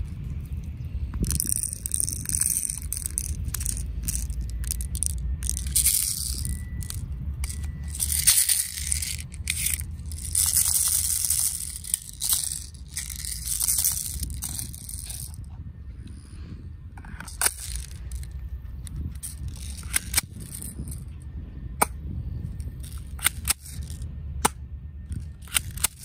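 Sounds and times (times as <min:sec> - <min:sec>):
steady low rumble: 0:00.0 - 0:26.0
small plastic clicks: 0:00.3 - 0:15.4, 0:17.0 - 0:21.0, 0:22.6 - 0:26.0.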